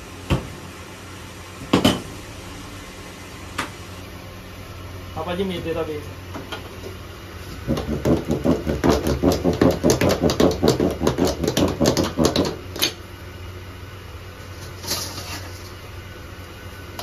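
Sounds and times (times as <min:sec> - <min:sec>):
dough docker rolling over dough: 0:07.4 - 0:12.7.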